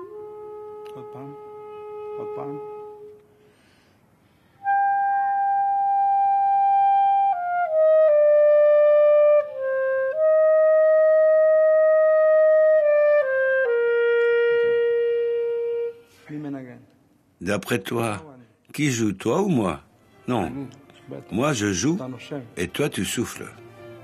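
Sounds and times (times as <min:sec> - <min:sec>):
clarinet playing long notes: 0:00.0 - 0:03.3, 0:04.6 - 0:16.2.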